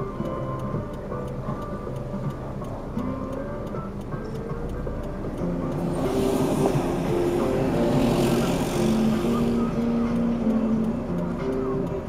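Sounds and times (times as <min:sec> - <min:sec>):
background music with simple melody: 0:00.0 - 0:12.0
road vehicle passing: 0:04.2 - 0:12.0.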